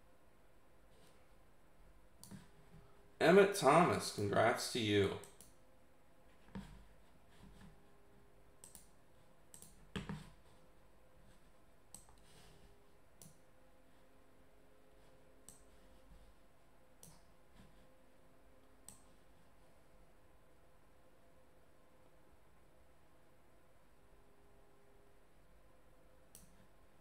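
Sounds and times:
mouse and keyboard clicks: 0:08.6 - 0:08.9, 0:09.5 - 0:10.3.

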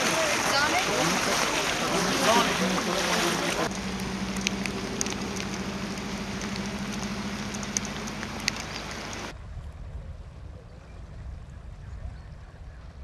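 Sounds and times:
rain falling: 0:00.0 - 0:09.3
low motor hum: 0:00.0 - 0:13.0
low rumble: 0:00.0 - 0:13.0.

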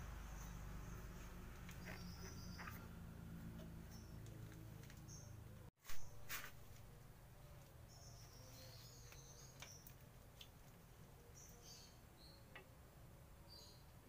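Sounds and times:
faint bird chirps: 0:00.2 - 0:02.9.

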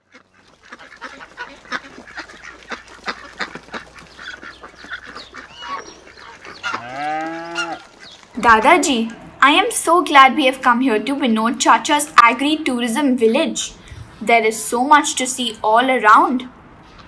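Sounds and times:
ducks quacking: 0:00.0 - 0:09.4
poultry calls: 0:00.0 - 0:09.4
geese honking: 0:00.0 - 0:09.9
cow mooing: 0:06.6 - 0:09.3.

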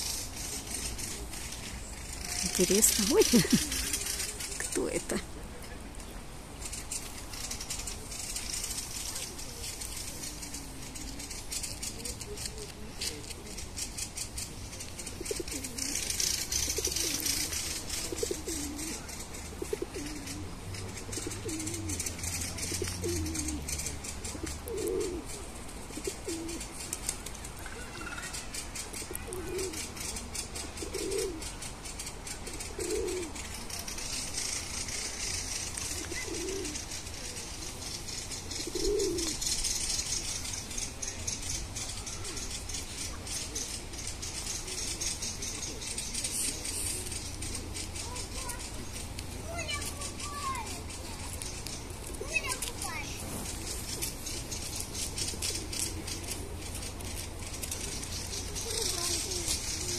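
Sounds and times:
dove cooing: 0:00.0 - 0:05.3, 0:06.7 - 0:59.9
high rushing hiss: 0:30.9 - 0:59.9.

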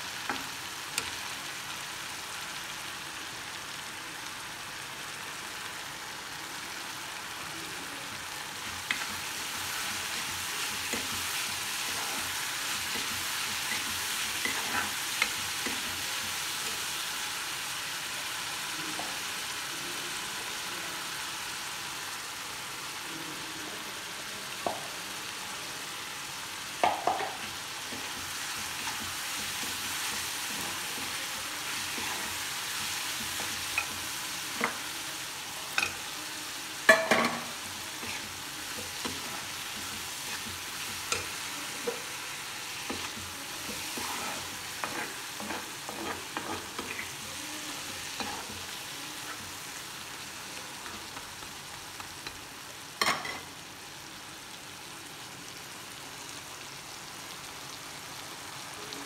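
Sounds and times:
gravy sizzling in a pan: 0:00.0 - 0:59.0
spatula knocking and scraping pan: 0:42.8 - 0:47.1.

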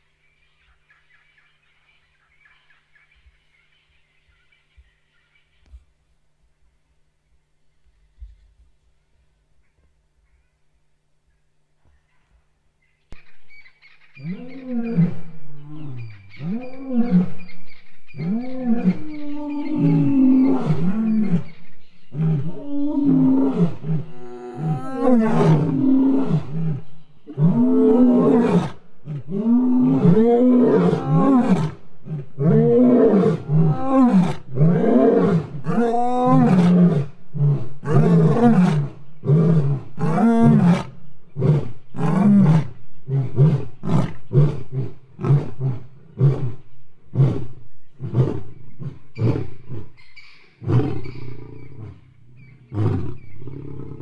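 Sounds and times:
lions roaring: 0:18.2 - 0:50.0, 0:50.6 - 0:54.0.

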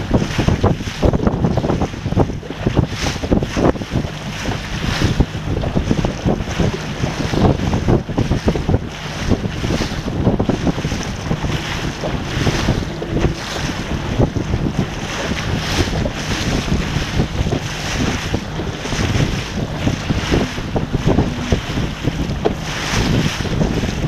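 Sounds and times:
water splashing along hull: 0:00.0 - 0:24.0
wind buffeting microphone: 0:00.0 - 0:24.0.

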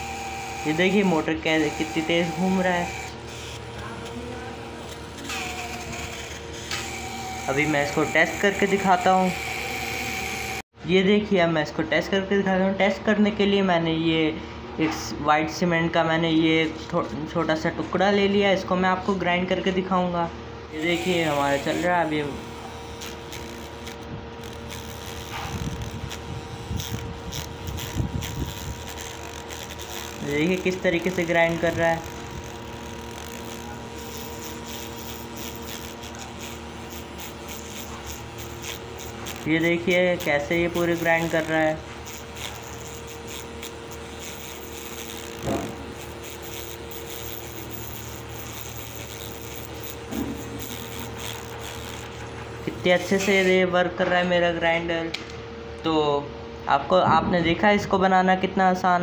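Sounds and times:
small electric motor whining: 0:00.0 - 0:10.6, 0:20.7 - 0:53.6
sandpaper rasping on cement: 0:33.1 - 0:53.6.

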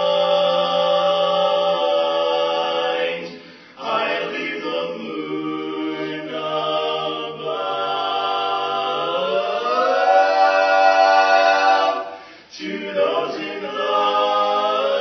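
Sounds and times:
singers in a cappella harmony: 0:00.0 - 0:15.0.

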